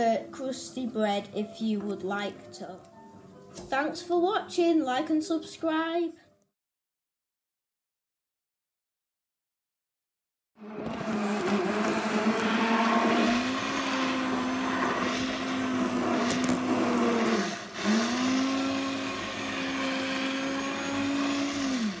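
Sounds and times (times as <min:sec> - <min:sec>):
electric hand blender running: 0:10.6 - 0:22.0.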